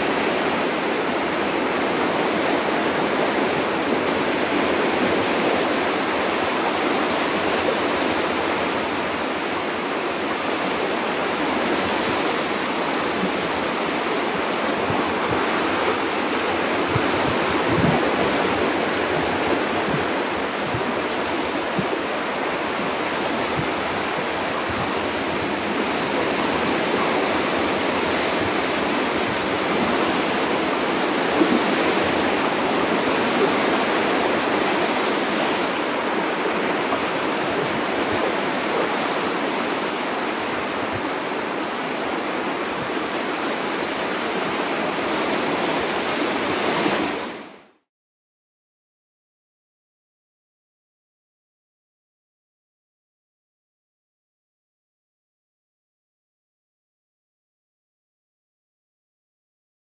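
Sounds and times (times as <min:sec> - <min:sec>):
ocean surf on rocky shore: 0:00.0 - 0:47.8.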